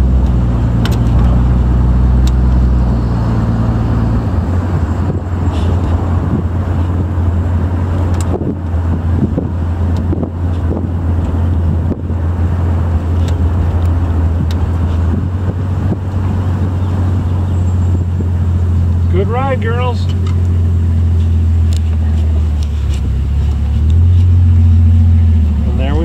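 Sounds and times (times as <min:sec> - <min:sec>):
engine and road rumble: 0:00.0 - 0:26.0
wind rushing over microphone: 0:00.3 - 0:18.6.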